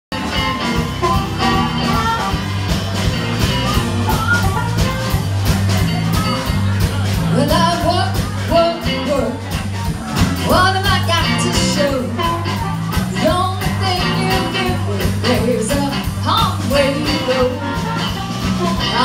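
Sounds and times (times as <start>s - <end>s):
drums: 0.1s - 19.0s
electric bass line: 0.1s - 19.0s
electric guitar: 0.1s - 19.0s
amplified harmonica: 0.2s - 5.4s, 17.0s - 19.0s.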